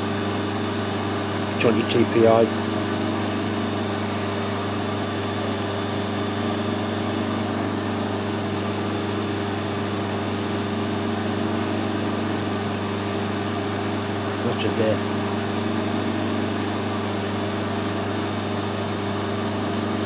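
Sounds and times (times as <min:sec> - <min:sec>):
workshop machinery humming: 0:00.0 - 0:20.0.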